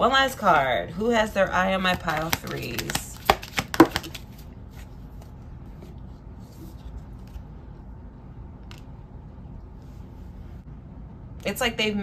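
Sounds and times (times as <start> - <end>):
low room hum: 0.0 - 12.0
cards rustling: 1.7 - 5.4.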